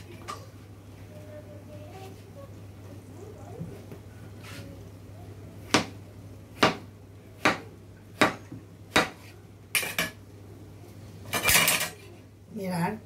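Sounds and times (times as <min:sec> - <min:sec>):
knife chopping on cutting board: 0:06.6 - 0:06.8, 0:07.4 - 0:09.3.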